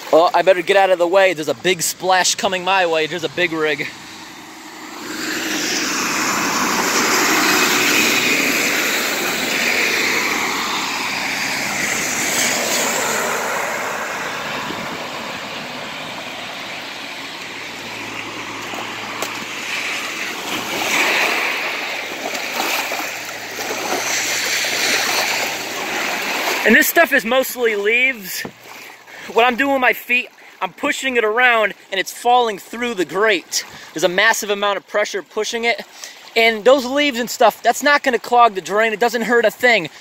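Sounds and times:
truck driving through floodwater: 0:00.0 - 0:40.0
boots splashing in water: 0:03.9 - 0:27.3, 0:28.2 - 0:30.5
water rushing down drain grate: 0:04.7 - 0:29.4.

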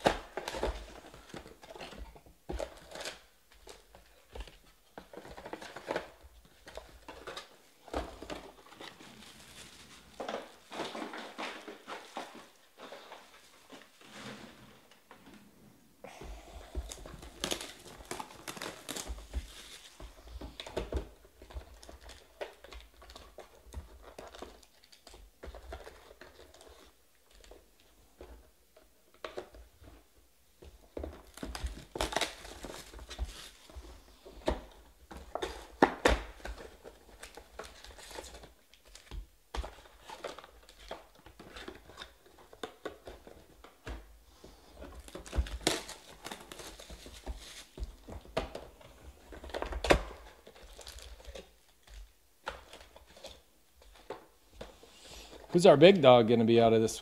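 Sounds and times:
foil packs crinkling: 0:16.7 - 0:23.4, 0:31.1 - 0:33.9, 0:44.8 - 0:47.9, 0:49.3 - 0:54.1.

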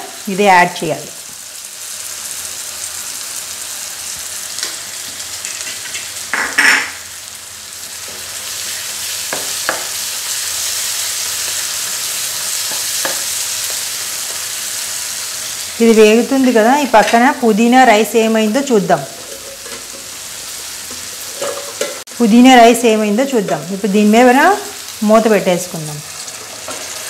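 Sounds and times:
food sizzling in a frying pan: 0:00.0 - 0:27.0
spatula tapping on pan: 0:09.3 - 0:09.9.

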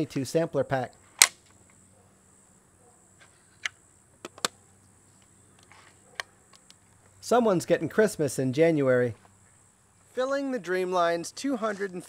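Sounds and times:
insect buzz: 0:01.0 - 0:11.2
air rifle action clicking: 0:01.2 - 0:01.6.

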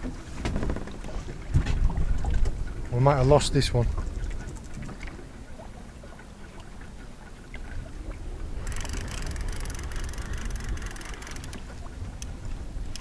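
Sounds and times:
low rumble of wind: 0:00.0 - 0:13.0
sea: 0:00.0 - 0:13.0
fishing reel ticking: 0:08.6 - 0:11.6
faint clicks: 0:08.6 - 0:13.0.

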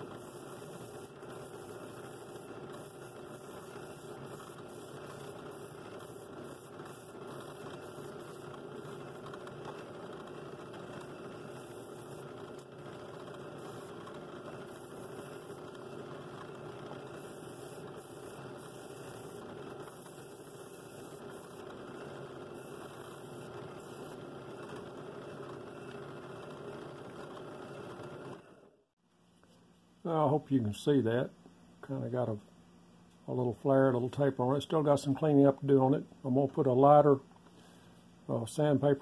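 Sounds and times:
sanding hiss on wood: 0:00.0 - 0:09.3, 0:17.0 - 0:24.2
drill press motor running: 0:00.0 - 0:28.9.

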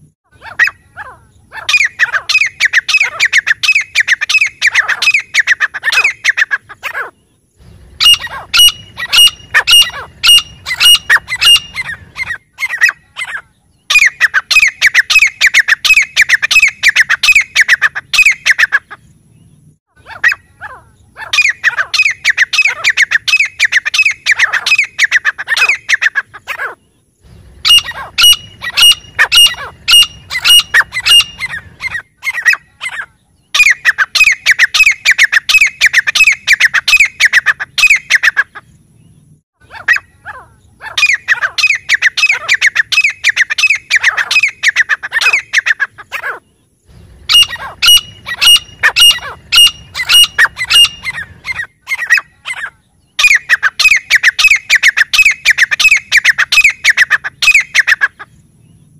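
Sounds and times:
bird calling ringing notes: 0:00.0 - 0:19.1, 0:19.9 - 0:27.0, 0:27.6 - 0:58.9.

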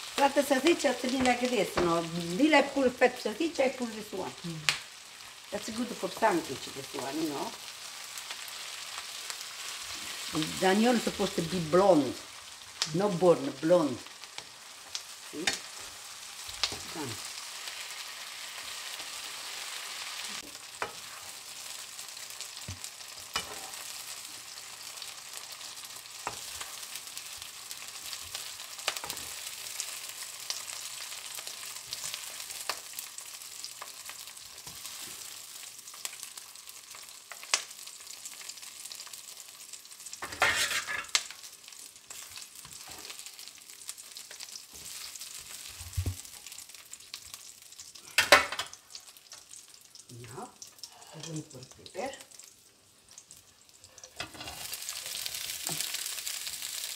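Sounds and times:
onions sizzling in a frying pan: 0:00.0 - 0:56.9
spatula scraping a pan: 0:15.4 - 0:21.8, 0:22.5 - 0:24.3, 0:40.2 - 0:41.2, 0:54.0 - 0:56.1.

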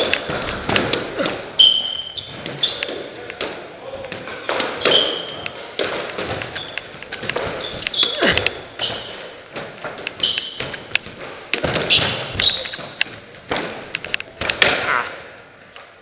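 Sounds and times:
shoes squeaking on wooden floor: 0:00.0 - 0:15.3
squash ball knocking off walls: 0:02.2 - 0:13.8.

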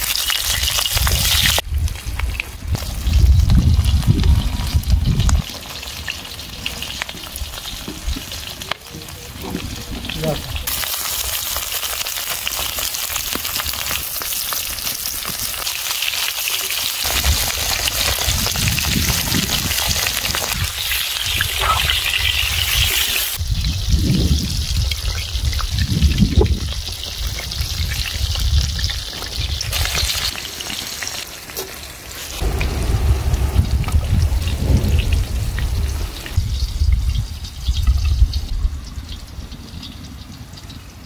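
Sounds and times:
sausages sizzling in a pan: 0:00.0 - 0:32.4
low rumble: 0:32.3 - 0:39.6.

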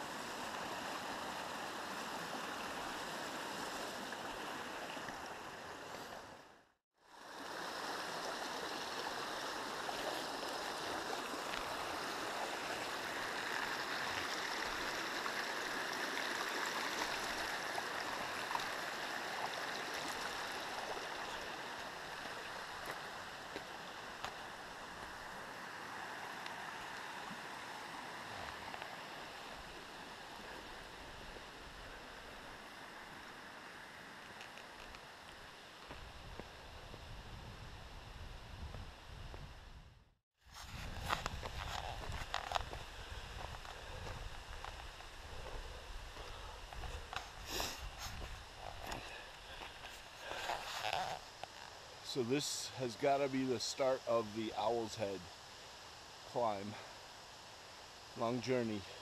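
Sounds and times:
stream rushing over stones: 0:00.0 - 0:06.4, 0:07.1 - 0:36.0.

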